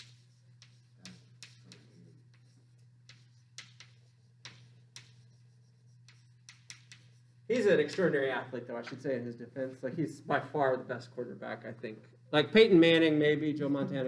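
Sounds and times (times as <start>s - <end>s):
chalk tapping and scraping: 0.0s - 9.1s
steady low hum: 0.0s - 14.0s.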